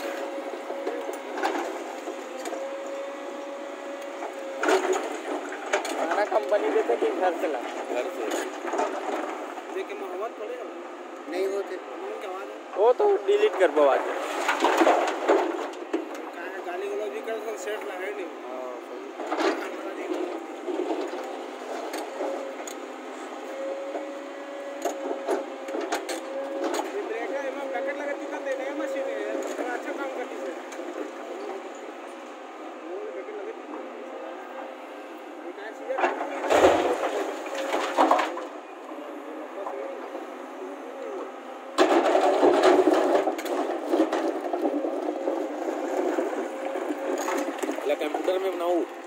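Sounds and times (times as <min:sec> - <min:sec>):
excavator whining: 0:00.0 - 0:49.0
loud clatter: 0:14.0 - 0:16.0, 0:36.0 - 0:38.5, 0:41.8 - 0:48.4.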